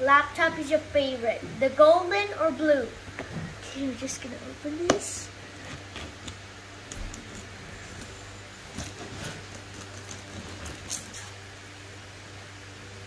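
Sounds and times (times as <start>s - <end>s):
steady low hum: 0.0s - 13.0s
box cutter scratching tape: 8.8s - 11.4s.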